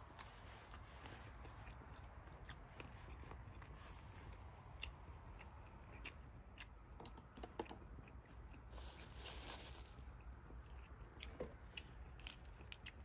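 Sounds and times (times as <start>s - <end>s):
campfire crackling: 8.7s - 10.1s.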